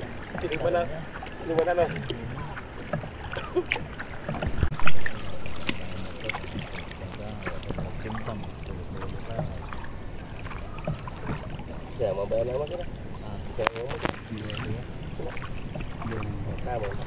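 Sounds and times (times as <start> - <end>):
water slapping against boat hull: 0.0 - 17.0
loud water rush: 4.7 - 17.0.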